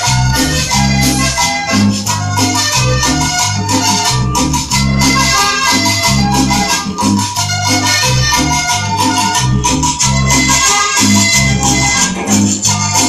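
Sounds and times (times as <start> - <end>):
accordion melody: 0.0 - 13.0
bass line: 0.0 - 13.0
rattling percussion rhythm: 0.0 - 13.0.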